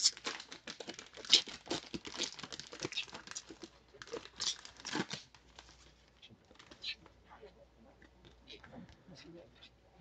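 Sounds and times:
foil wrapper tearing and crinkling: 0.0 - 5.7.

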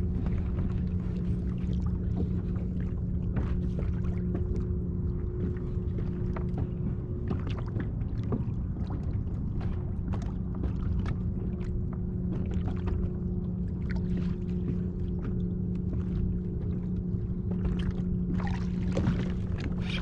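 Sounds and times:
steady low hum: 0.0 - 20.0
waves slapping a kayak hull: 17.6 - 20.0.

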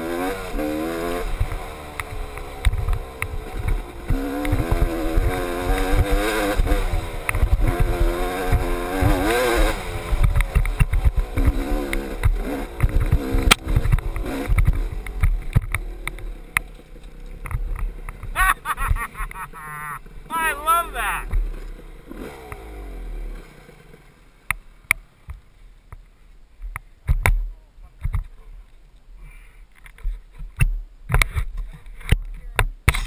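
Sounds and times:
dirt bike engine revving: 0.0 - 24.4.

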